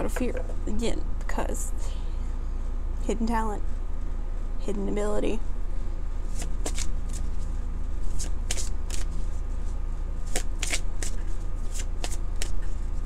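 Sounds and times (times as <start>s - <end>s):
steady low hum: 0.0s - 13.0s
cards being shuffled by hand: 6.3s - 9.4s, 10.2s - 13.0s.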